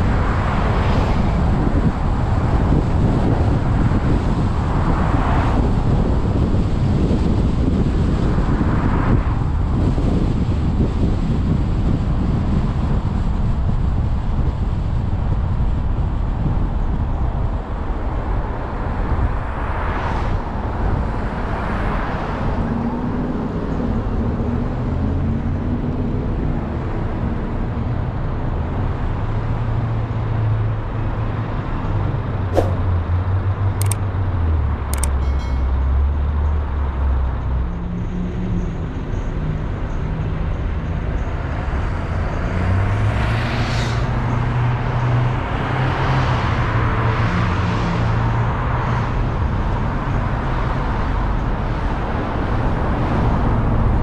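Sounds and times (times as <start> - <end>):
tyre and road noise: 27.6 - 54.0
sharp clicks: 33.8 - 34.0, 35.0 - 35.2.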